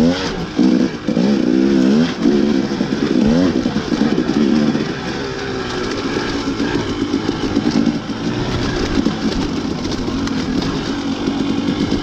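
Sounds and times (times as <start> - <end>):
dirt bike engine: 0.0 - 12.0
riding noise: 0.0 - 12.0.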